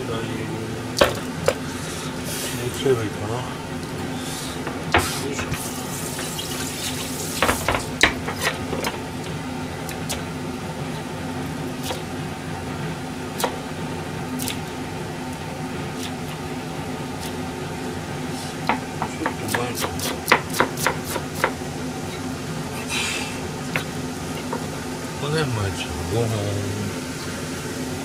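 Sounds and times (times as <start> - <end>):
steady low hum: 0.0 - 28.0
tap running into sink: 5.0 - 9.0
knife tapping on cutting board: 18.6 - 21.6.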